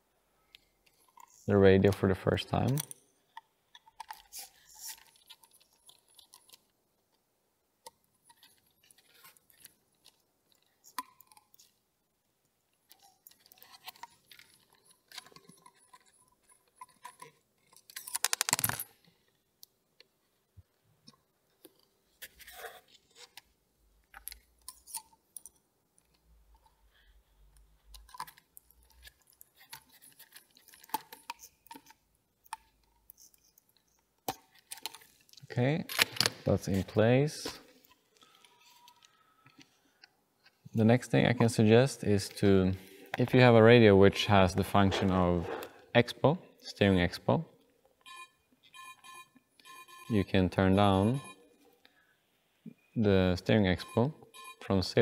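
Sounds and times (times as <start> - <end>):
screws and parts clicking: 2.6 - 6.7, 12.8 - 19.1, 24.0 - 26.8, 27.5 - 36.3.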